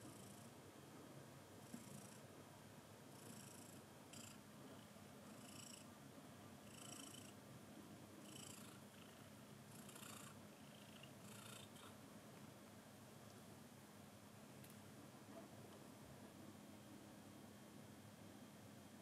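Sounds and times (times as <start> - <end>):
cat purring: 3.1 - 5.9, 6.7 - 7.4, 8.2 - 12.0.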